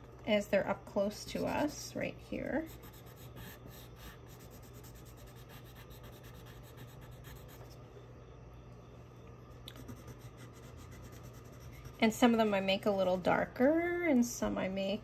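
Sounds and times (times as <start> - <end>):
low steady hum: 0.0 - 15.0
pencil scratching on paper: 2.5 - 7.7, 9.7 - 12.5.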